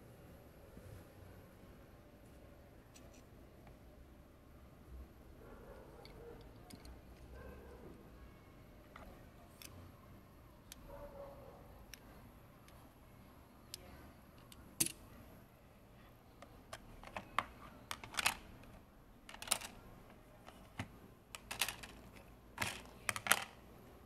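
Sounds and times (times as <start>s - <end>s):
plastic bricks clicking and clattering: 16.7s - 19.8s, 20.4s - 23.6s.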